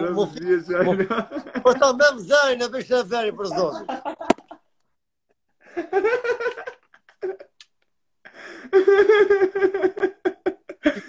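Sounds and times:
man laughing hard: 0:05.8 - 0:07.6, 0:08.7 - 0:11.0.

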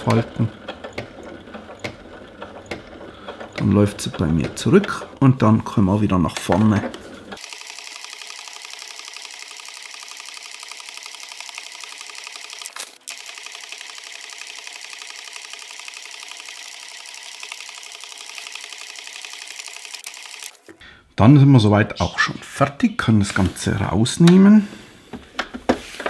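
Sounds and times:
sewing machine stitching: 0:00.0 - 0:05.6, 0:06.2 - 0:20.6.

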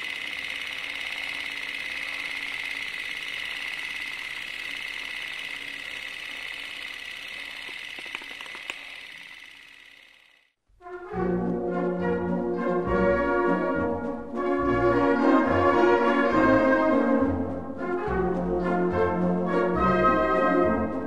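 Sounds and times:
sharp clicks: 0:00.0 - 0:10.4
film projector whirring: 0:00.0 - 0:10.5.

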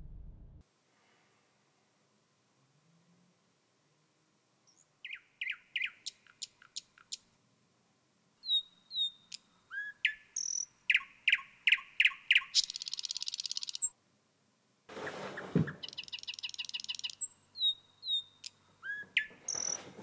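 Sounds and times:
songbird singing: 0:04.6 - 0:07.4, 0:08.4 - 0:14.0, 0:15.0 - 0:20.0.

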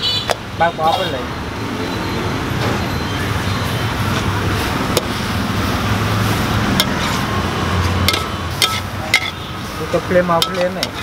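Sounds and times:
wok cooking hiss: 0:04.5 - 0:11.0
spatula clinking against wok: 0:08.1 - 0:09.4, 0:10.4 - 0:11.0.

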